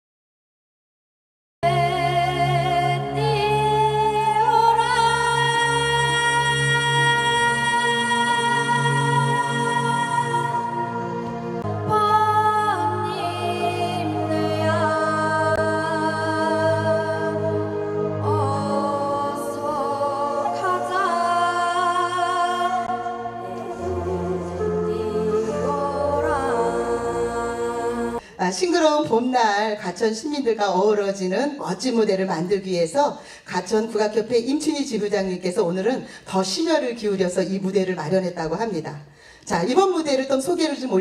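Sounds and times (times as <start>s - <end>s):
folk singing with vibrato: 1.7s - 28.3s.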